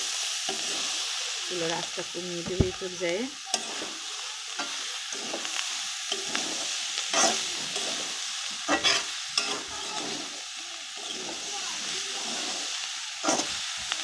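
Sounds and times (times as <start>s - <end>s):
vegetables sizzling in a pan: 0.0s - 14.0s
metal spatula scraping a pan: 2.5s - 13.7s.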